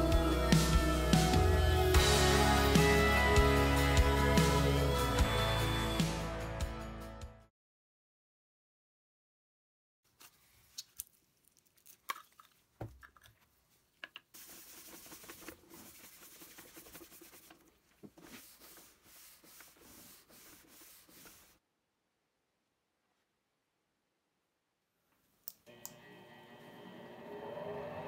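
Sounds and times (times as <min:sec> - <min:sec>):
cloth rubbing wooden surface: 0:14.4 - 0:21.6.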